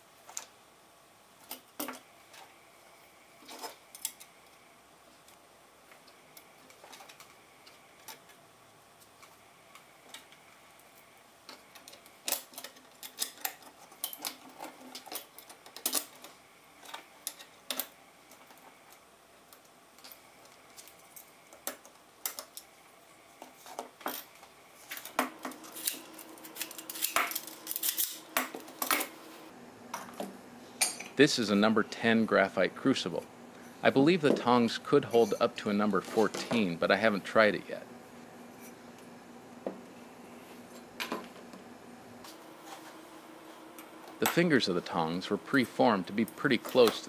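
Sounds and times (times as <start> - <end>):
metallic clanks and ring: 30.8 - 31.2, 35.1 - 35.5.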